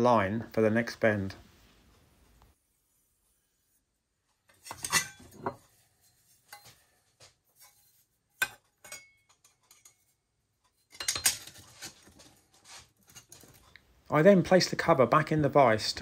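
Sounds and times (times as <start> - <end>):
metal plate and rule clinking: 4.6 - 5.6, 8.4 - 10.1, 10.8 - 12.1.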